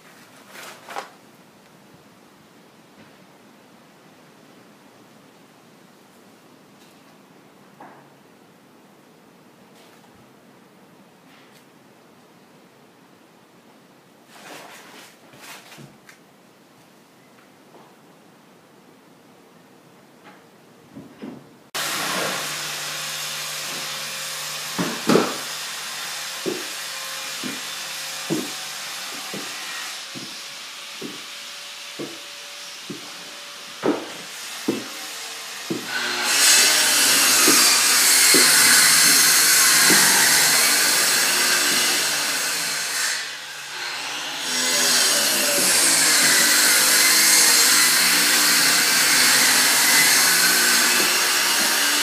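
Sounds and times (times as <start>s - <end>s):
sharp knocks: 24.7s - 25.5s, 26.4s - 30.4s, 31.0s - 31.3s, 32.0s - 32.2s, 33.8s - 35.0s, 35.7s - 40.6s.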